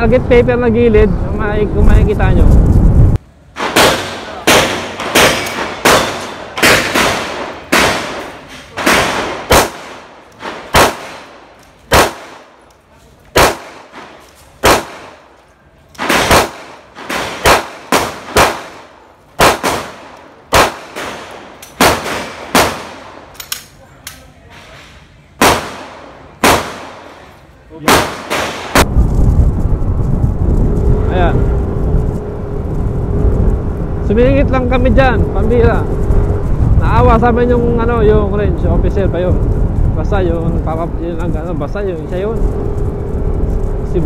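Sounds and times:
gunshots with echo: 3.6s - 12.5s, 13.3s - 15.2s, 16.0s - 23.2s, 25.4s - 27.2s, 27.8s - 28.9s.

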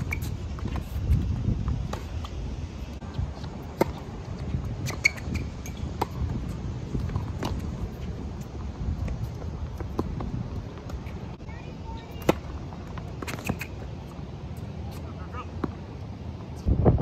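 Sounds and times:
tennis ball bouncing: 0.0s - 2.4s, 3.4s - 11.2s, 12.1s - 13.8s.

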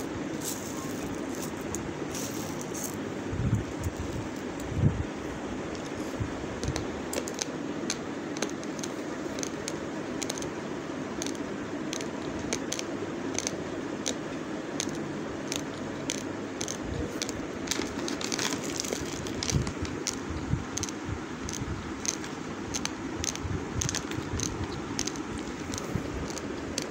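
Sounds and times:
rice grains clicking and crackling: 0.0s - 3.0s, 14.8s - 26.9s
low background noise: 0.0s - 26.9s.

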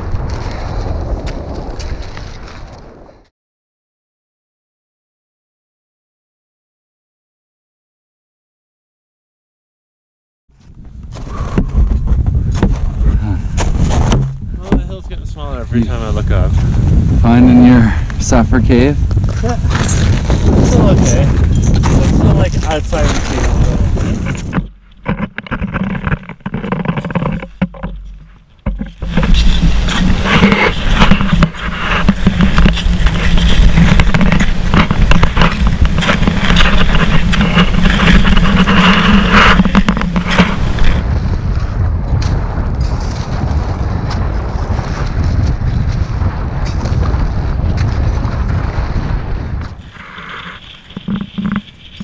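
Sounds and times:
wind buffeting microphone: 0.0s - 3.2s, 10.6s - 52.0s
footsteps crunching in snow: 19.2s - 24.8s, 25.8s - 41.7s
ice axe planted in snow: 25.2s - 41.0s.

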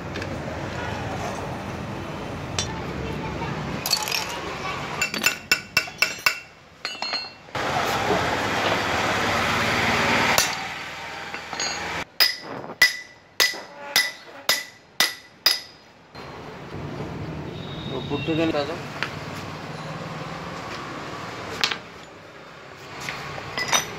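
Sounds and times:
metal tools clinking: 3.8s - 4.4s, 5.0s - 7.5s, 11.3s - 14.8s, 23.5s - 23.9s.

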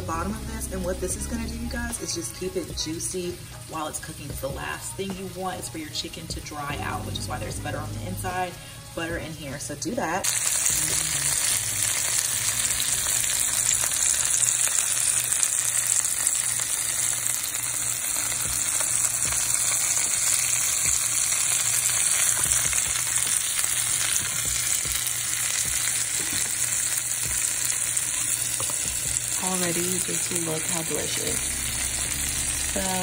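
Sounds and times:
chicken sizzling in a skillet: 10.2s - 33.0s.

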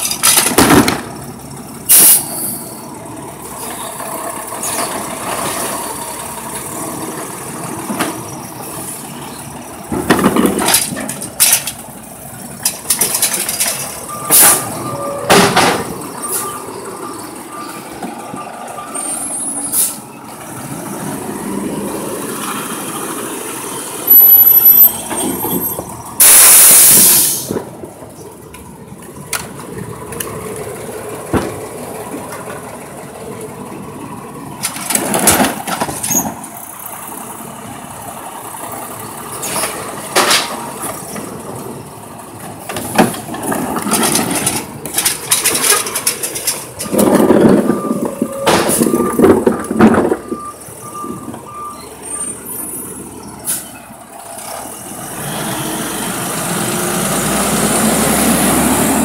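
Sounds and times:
clanks and bangs of truck arm: 0.0s - 1.2s, 9.8s - 11.8s, 12.6s - 16.1s, 31.2s - 31.7s, 34.6s - 36.5s, 39.4s - 41.3s, 42.6s - 51.4s
garbage truck engine running: 0.0s - 59.0s
air brakes hissing: 1.9s - 2.9s, 14.3s - 15.3s, 19.0s - 20.1s, 26.2s - 27.7s, 53.4s - 53.8s.

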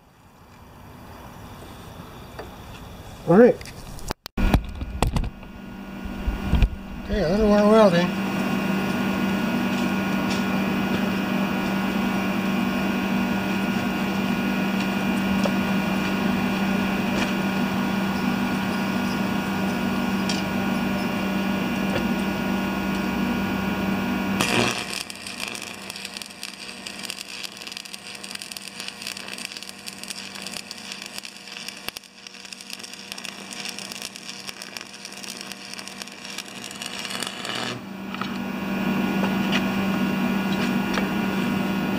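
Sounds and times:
stick welding arc crackle: 3.8s - 38.4s
loud machine hum with hiss: 5.2s - 41.9s.

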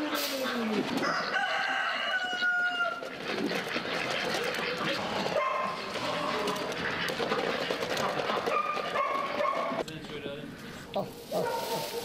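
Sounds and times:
poultry noises: 0.0s - 12.0s
rooster crowing: 1.0s - 3.0s.

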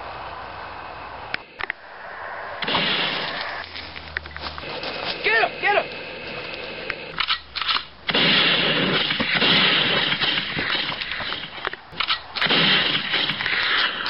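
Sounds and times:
gunfire shots and bursts: 2.6s - 3.5s, 7.2s - 14.0s.

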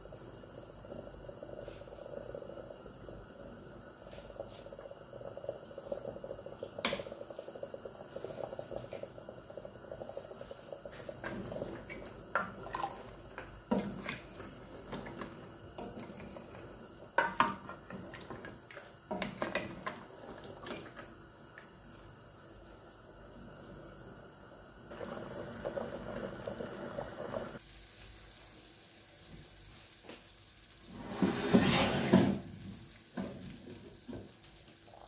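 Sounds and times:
broth bubbling in pot: 0.0s - 35.0s
ladle stirring and sloshing liquid: 10.0s - 16.6s, 17.2s - 21.1s.

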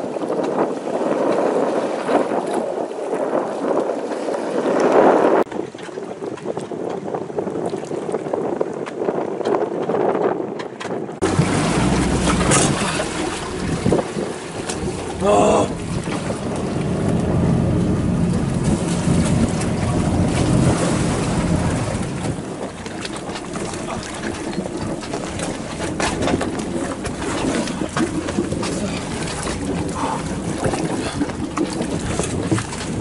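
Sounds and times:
water slapping around dinghy: 0.0s - 33.0s
wind buffeting microphone: 0.0s - 33.0s
knocks and splashes: 10.6s - 33.0s.

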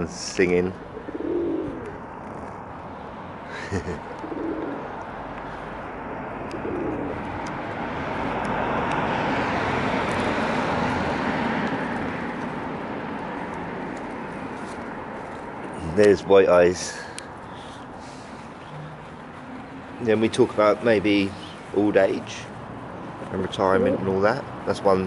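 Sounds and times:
broad rushing noise: 0.0s - 25.0s
pigeons cooing: 0.8s - 2.5s, 4.0s - 5.0s, 6.4s - 7.3s, 23.6s - 24.2s.

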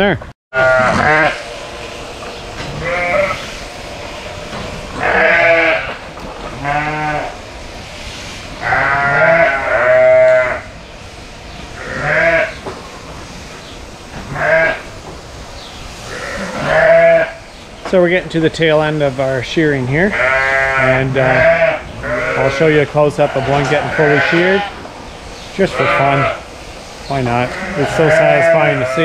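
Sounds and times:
sheep bleating: 0.6s - 1.4s, 2.8s - 3.6s, 5.0s - 6.0s, 6.6s - 7.4s, 8.6s - 10.7s, 11.8s - 12.6s, 14.3s - 14.9s, 16.1s - 17.4s, 20.1s - 24.8s, 25.6s - 26.4s, 27.2s - 29.0s.

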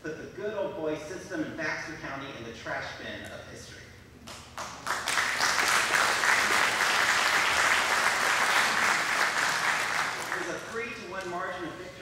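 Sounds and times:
audience applauding: 4.6s - 10.6s.

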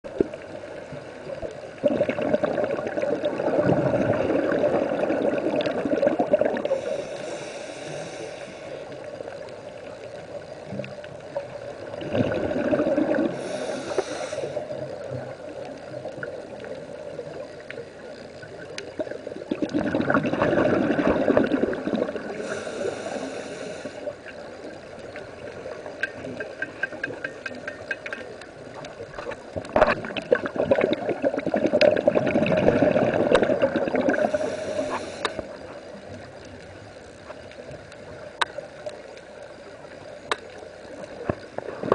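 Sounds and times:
bubbling underwater exhalation: 1.8s - 6.7s, 12.0s - 13.4s, 19.4s - 22.4s, 29.8s - 34.5s
faint clicking: 5.0s - 19.8s, 21.4s - 31.0s, 33.2s - 41.9s
regulator inhaling hiss: 6.6s - 9.3s, 13.2s - 15.0s, 22.2s - 24.3s, 34.1s - 35.8s.

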